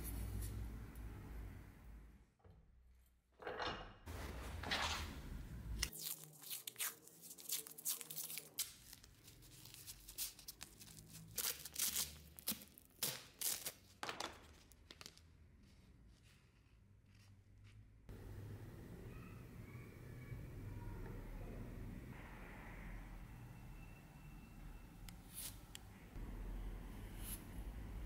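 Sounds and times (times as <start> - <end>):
masking tape peeling and tearing: 5.8 - 14.0
tape crackling and crinkling: 5.8 - 17.8.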